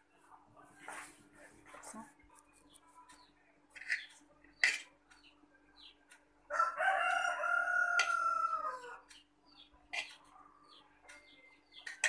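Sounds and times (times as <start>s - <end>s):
rooster crowing: 6.5s - 9.0s.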